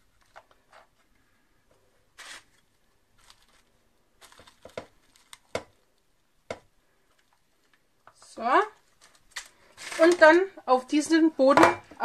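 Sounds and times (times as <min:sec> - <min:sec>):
cling film rustling: 0:02.1 - 0:06.2, 0:08.8 - 0:10.3.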